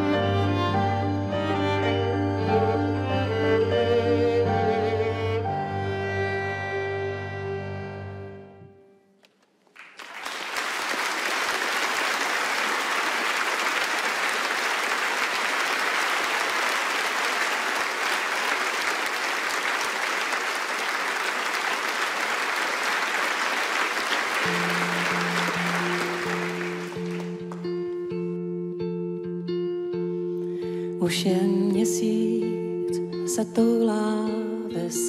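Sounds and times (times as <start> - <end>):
audience applauding: 9.6 - 27.8
electric guitar held notes: 24.4 - 35.0.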